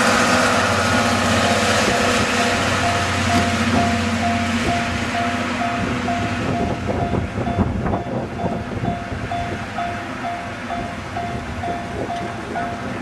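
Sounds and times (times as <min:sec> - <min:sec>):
train rumble: 0:00.0 - 0:13.0
level crossing warning bell: 0:01.4 - 0:13.0
wind on microphone: 0:03.4 - 0:10.0, 0:10.7 - 0:13.0.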